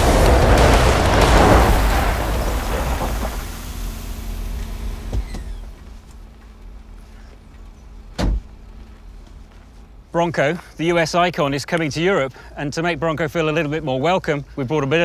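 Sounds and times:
car driving off: 0:00.0 - 0:09.7
short thump: 0:04.6 - 0:06.0, 0:08.1 - 0:08.5.

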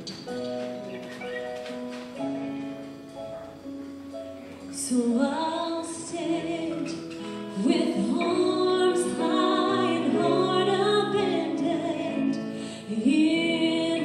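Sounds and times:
guitar: 0:00.0 - 0:14.0
keyboard: 0:00.0 - 0:14.0
woman singing: 0:04.7 - 0:14.0.

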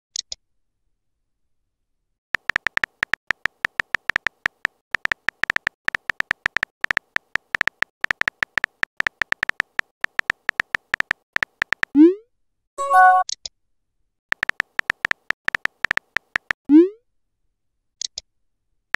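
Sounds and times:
synthetic keyboard typing clicks: 0:02.4 - 0:12.0, 0:14.3 - 0:16.6
short chime: 0:12.8 - 0:13.2.

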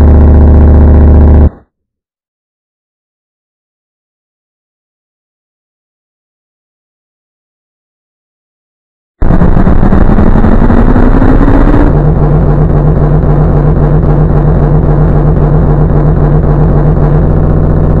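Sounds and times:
engine revving then idling: 0:00.0 - 0:01.5, 0:09.2 - 0:18.0.

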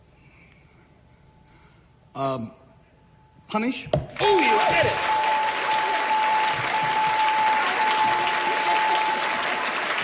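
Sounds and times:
audience applauding: 0:04.2 - 0:10.0.

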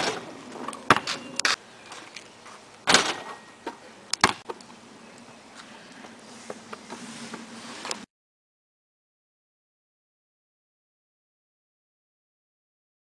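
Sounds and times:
basketball bouncing on concrete: 0:00.9 - 0:01.6.

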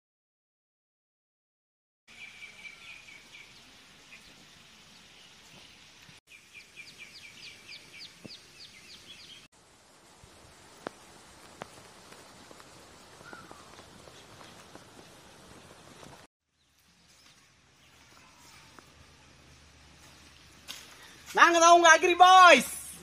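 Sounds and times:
small birds chirping and trilling: 0:02.1 - 0:09.5, 0:13.1 - 0:21.3
faint outdoor background noise: 0:02.1 - 0:23.0.

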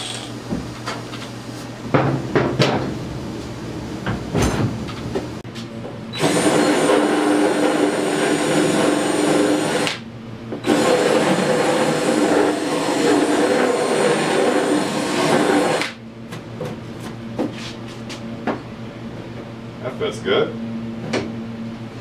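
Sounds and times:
cordless drill cutting plastic: 0:00.0 - 0:00.3, 0:10.6 - 0:16.0.

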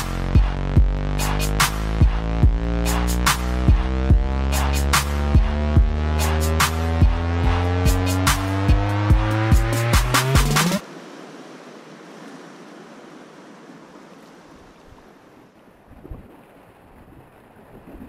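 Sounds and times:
music with a strong beat: 0:00.0 - 0:10.8
low water thumps: 0:00.3 - 0:06.2.

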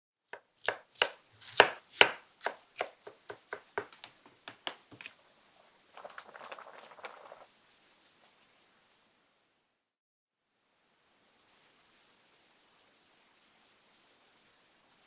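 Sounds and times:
knife chopping on cutting board: 0:00.4 - 0:05.1
stew simmering crackle: 0:00.7 - 0:09.2.

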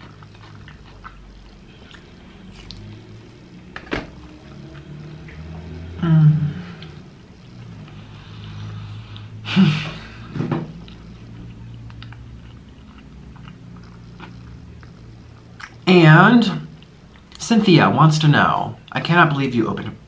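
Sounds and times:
man chewing pizza: 0:00.0 - 0:09.4, 0:10.1 - 0:16.0
low steady hum: 0:00.0 - 0:20.0.

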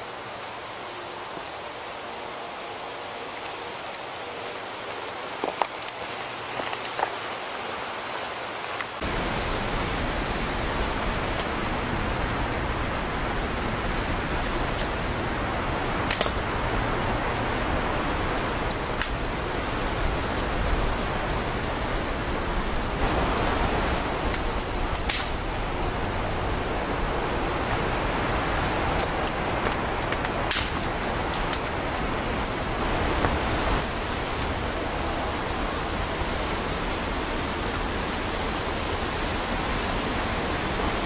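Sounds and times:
steady rushing noise: 0:00.0 - 0:41.0
sharp clicks or snaps: 0:16.1 - 0:16.4, 0:18.7 - 0:19.2, 0:24.3 - 0:25.4, 0:29.0 - 0:31.7.

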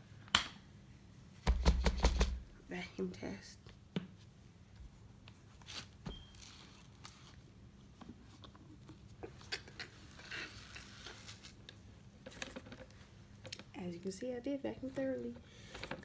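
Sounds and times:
hands rustling plastic parts: 0:05.2 - 0:13.6
faint clicks of plastic parts: 0:15.3 - 0:16.0.

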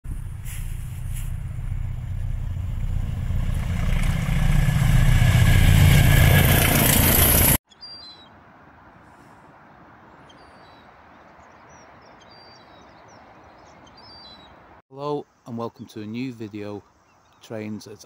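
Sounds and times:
diesel locomotive engine rumble: 0:00.1 - 0:07.6
faint bird chirps: 0:07.7 - 0:08.4, 0:10.1 - 0:18.0.

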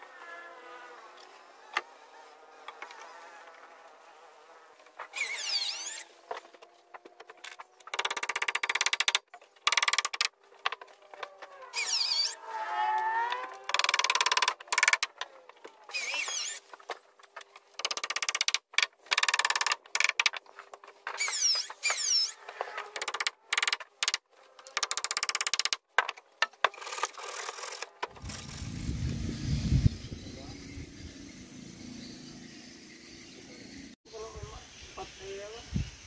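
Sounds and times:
power tool squealing: 0:05.1 - 0:06.1, 0:11.7 - 0:15.0, 0:15.9 - 0:16.6, 0:21.1 - 0:23.2.

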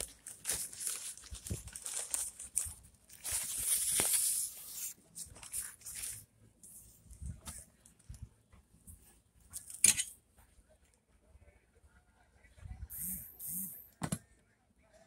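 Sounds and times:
packing paper rustling and crinkling: 0:00.0 - 0:06.3.

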